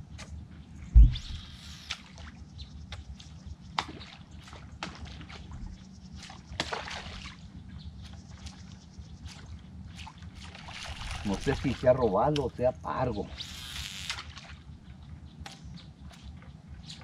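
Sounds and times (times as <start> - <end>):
steady low rumble: 0.0 - 1.6, 5.4 - 6.6
water sloshing and splashing: 1.0 - 12.6, 13.2 - 17.0.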